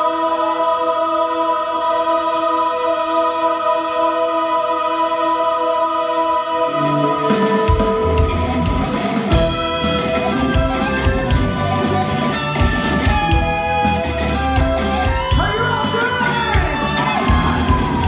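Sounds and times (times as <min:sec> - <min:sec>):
rock band playing live: 0:06.8 - 0:18.0
cymbals and drum beat: 0:07.3 - 0:18.0.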